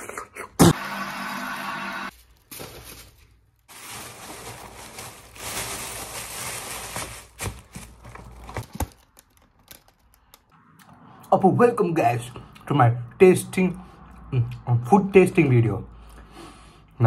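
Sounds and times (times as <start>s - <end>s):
paper bag crinkling: 2.1s - 10.5s.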